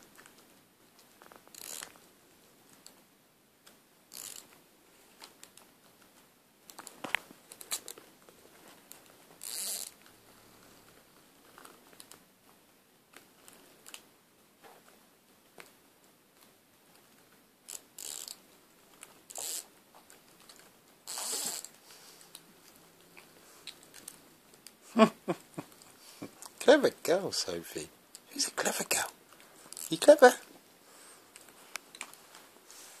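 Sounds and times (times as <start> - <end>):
toy string zipping and ratcheting: 1.5 - 2.0, 4.1 - 4.6, 7.5 - 8.0, 9.4 - 10.0, 17.7 - 18.4, 19.3 - 19.7, 21.0 - 21.8, 29.7 - 30.4
toy buzzing: 9.4 - 9.9, 19.3 - 19.7, 21.1 - 21.7.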